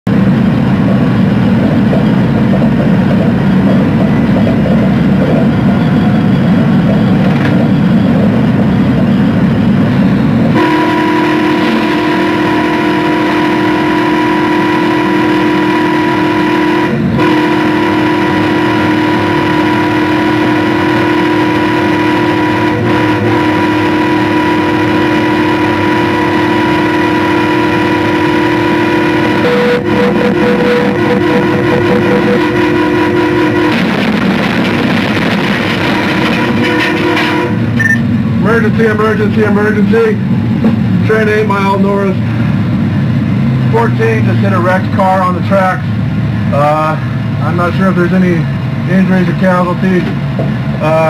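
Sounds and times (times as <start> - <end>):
train rumbling on rails: 0.0 - 51.0
train horn chord: 10.5 - 37.8.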